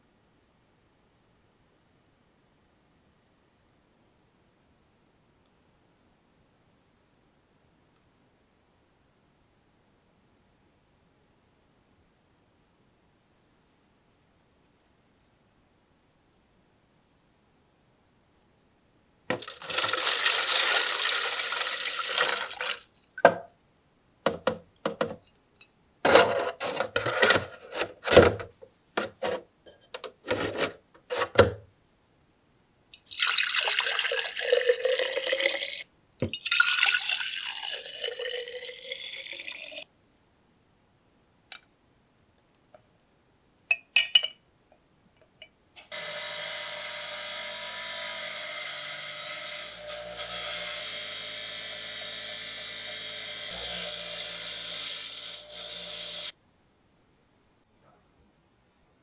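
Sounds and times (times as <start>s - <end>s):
liquid pouring into plastic jug: 19.3s - 23.1s, 33.0s - 39.8s
bench grinder running: 46.0s - 56.3s.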